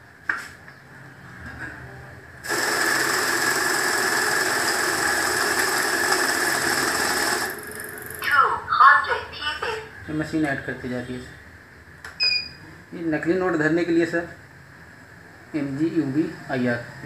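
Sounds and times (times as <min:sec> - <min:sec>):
counting machine whirring: 0:02.4 - 0:08.4.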